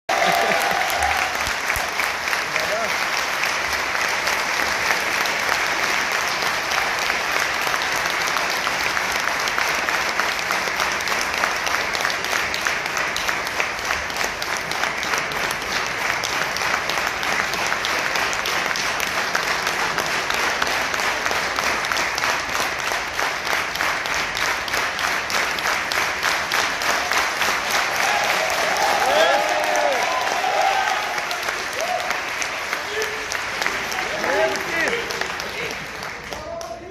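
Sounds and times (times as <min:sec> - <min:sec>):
audience applauding: 0:00.0 - 0:36.9.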